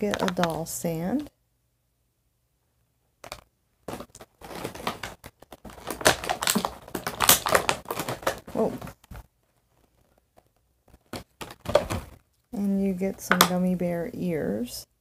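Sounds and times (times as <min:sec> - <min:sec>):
plastic packaging crinkling: 0:00.0 - 0:01.3, 0:03.2 - 0:12.4.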